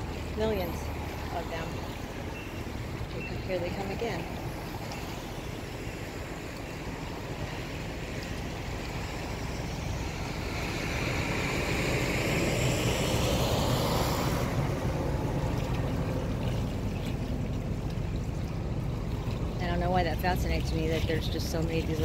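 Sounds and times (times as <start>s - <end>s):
motorboat engine rumble: 0.0s - 22.0s
rushing water: 0.0s - 22.0s.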